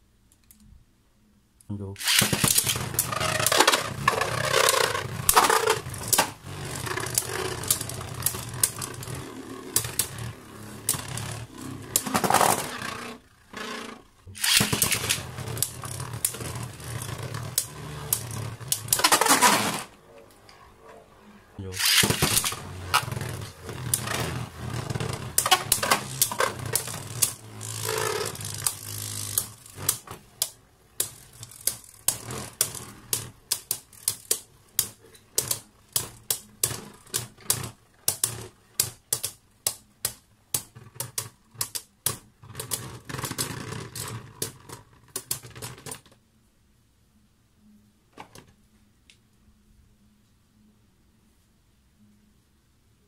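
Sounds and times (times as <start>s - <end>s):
spinning tops clashing in plastic stadium: 2.0s - 13.1s, 14.4s - 19.9s, 21.8s - 46.1s.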